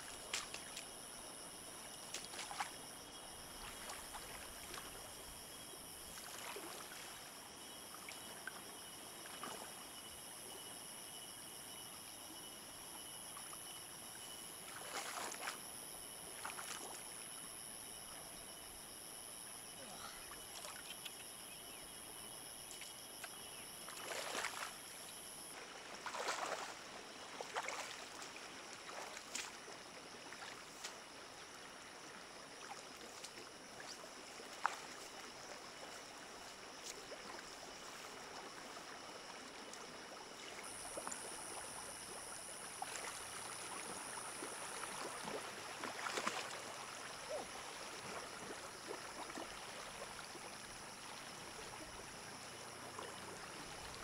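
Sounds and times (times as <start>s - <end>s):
water sloshing and splashing: 2.0s - 2.8s, 3.4s - 5.2s, 6.0s - 7.3s, 14.7s - 15.6s, 16.3s - 17.0s, 22.6s - 25.0s, 25.8s - 31.2s, 32.6s - 54.0s.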